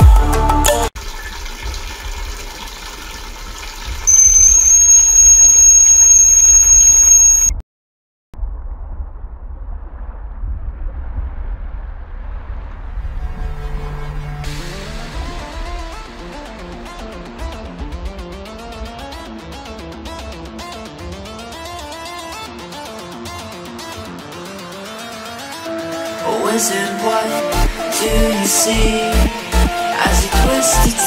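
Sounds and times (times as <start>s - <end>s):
high-pitched buzzer alarm tone: 4.1s - 7.6s.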